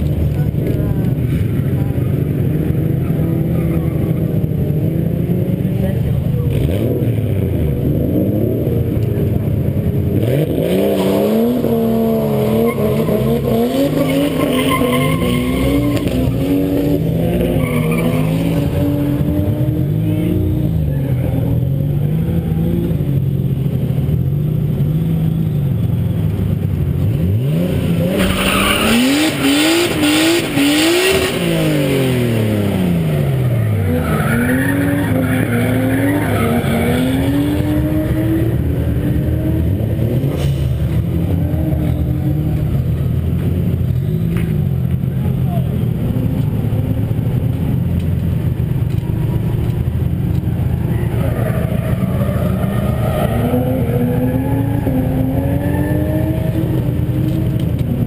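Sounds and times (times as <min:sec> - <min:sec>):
car engine revving: 0:00.0 - 0:58.0
tyres squealing and skidding: 0:10.3 - 0:21.4, 0:27.6 - 0:38.7, 0:49.0 - 0:56.8.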